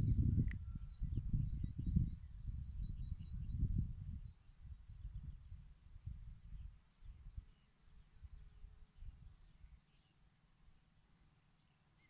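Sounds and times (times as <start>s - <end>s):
wind buffeting microphone: 0.0s - 7.5s
small bird chirping: 0.0s - 12.0s.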